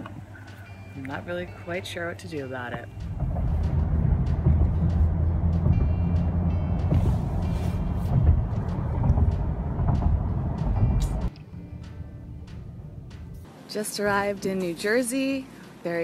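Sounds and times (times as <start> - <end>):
road and wind noise in car cabin: 0.0 - 11.3.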